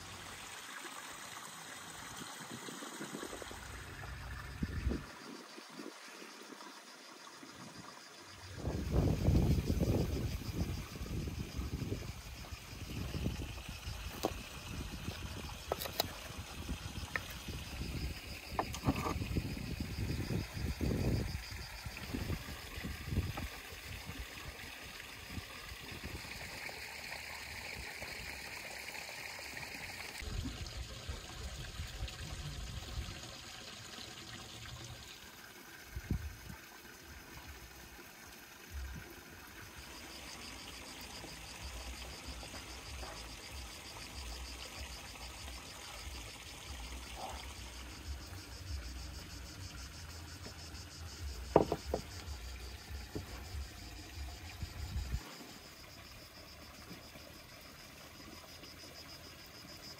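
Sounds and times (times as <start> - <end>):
insects chirping: 0.0 - 59.9
short knocks: 51.5 - 52.2.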